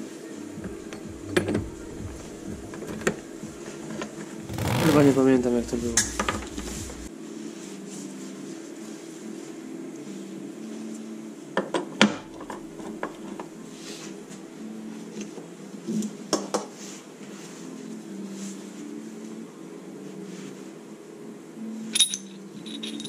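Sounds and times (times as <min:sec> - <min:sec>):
steady low hum: 0:04.4 - 0:07.1
metal parts clinking: 0:22.0 - 0:23.0.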